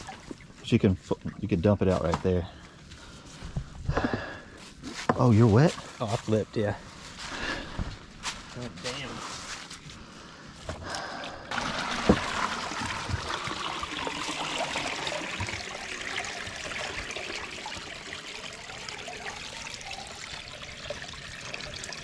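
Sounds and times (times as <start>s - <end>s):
water pouring and splashing: 0.0s - 2.1s, 11.5s - 22.0s.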